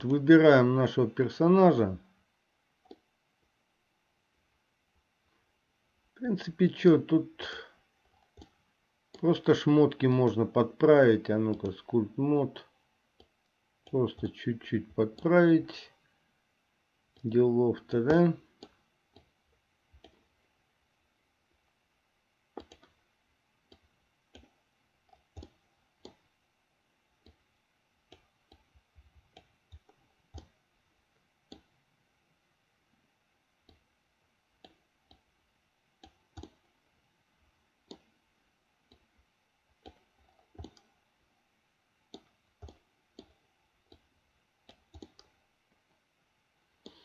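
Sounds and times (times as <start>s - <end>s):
computer mouse clicking: 2.8s - 3.1s, 8.1s - 9.2s, 11.5s - 11.9s, 18.5s - 19.4s, 20.0s - 20.3s, 22.5s - 23.0s, 23.6s - 26.3s, 27.2s - 27.4s, 28.0s - 30.6s, 31.4s - 31.8s, 34.6s - 35.3s, 36.0s - 36.8s, 37.8s - 38.2s, 38.8s - 39.1s, 39.8s - 41.0s, 42.0s - 45.4s, 46.8s - 47.0s.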